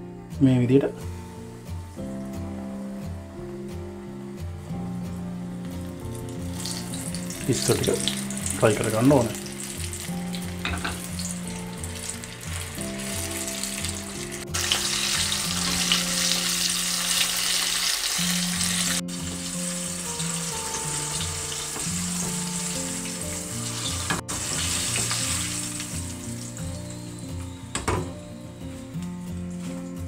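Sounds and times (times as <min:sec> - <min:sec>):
soft background music: 0:00.0 - 0:30.0
prawns deep-frying in oil: 0:05.8 - 0:27.2.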